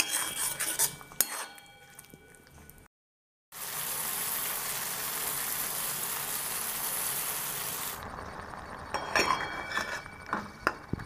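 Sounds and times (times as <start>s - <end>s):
food hissing in hot pan: 3.6s - 8.0s.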